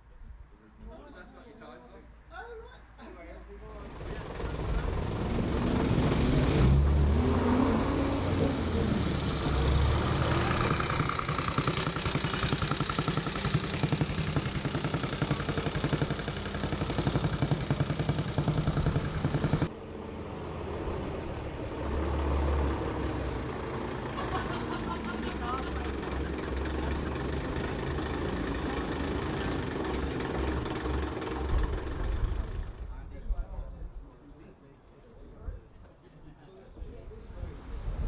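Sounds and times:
bus engine running: 0:03.8 - 0:32.9
motorcycle engine running: 0:09.1 - 0:19.7.

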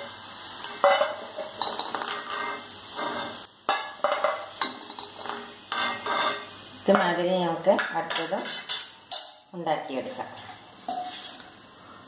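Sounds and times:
oil sizzling faintly: 0:00.0 - 0:12.0
metal skimmer scraping metal pan: 0:00.6 - 0:07.0, 0:10.9 - 0:11.4.

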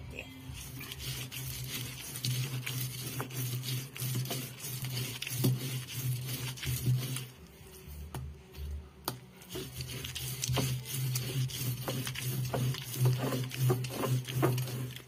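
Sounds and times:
stone grinding against stone: 0:00.5 - 0:07.3, 0:09.5 - 0:15.0.

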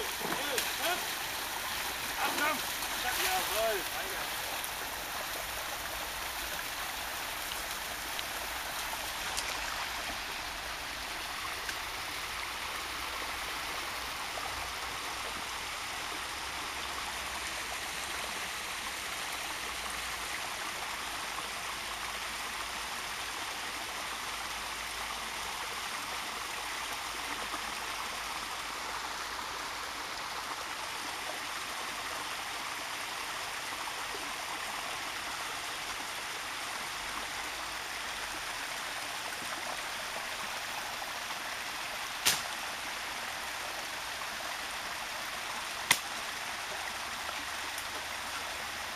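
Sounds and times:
water rushing over rocks: 0:00.0 - 0:19.5.

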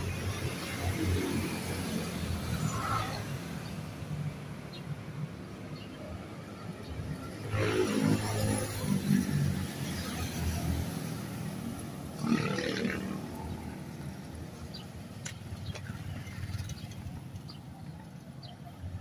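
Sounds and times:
highway traffic: 0:00.0 - 0:19.0
loud engine passing: 0:12.1 - 0:13.8.

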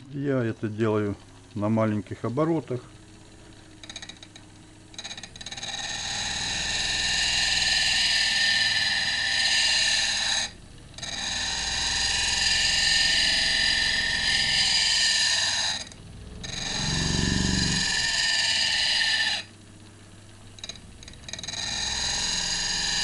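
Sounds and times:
drill grinding steel on disc: 0:05.0 - 0:19.5, 0:20.6 - 0:23.0.

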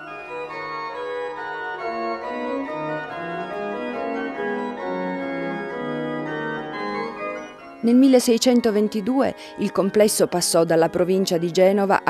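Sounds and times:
organ music: 0:00.0 - 0:12.0.

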